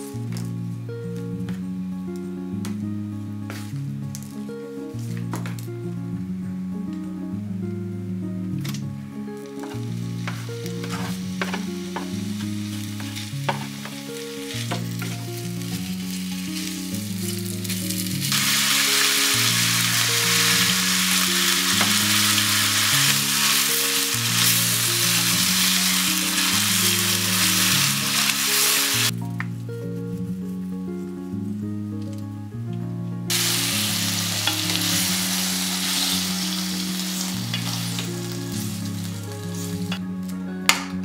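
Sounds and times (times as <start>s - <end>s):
soft guitar music: 0.0s - 41.0s
meat sizzling in a pan: 10.3s - 29.1s, 33.3s - 40.0s.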